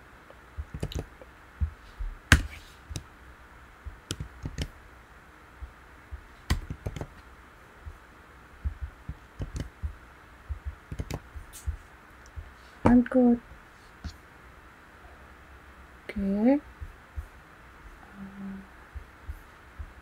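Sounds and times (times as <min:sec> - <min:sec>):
keyboard keystrokes: 0:00.7 - 0:01.1, 0:04.0 - 0:04.7, 0:06.5 - 0:07.1, 0:09.1 - 0:09.8, 0:10.9 - 0:11.3
mouse clicks: 0:04.0 - 0:04.7, 0:06.5 - 0:07.1, 0:09.1 - 0:09.8, 0:10.9 - 0:11.8.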